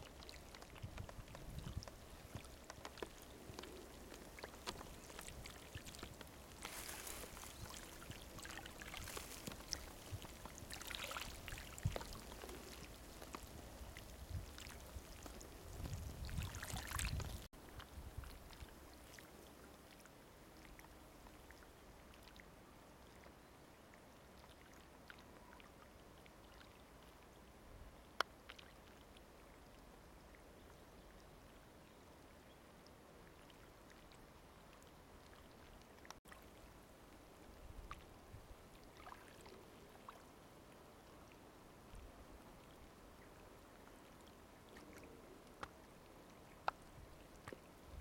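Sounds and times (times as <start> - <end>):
faint ticks: 0.0 - 16.0, 44.8 - 45.8
faint water sounds: 0.0 - 48.0.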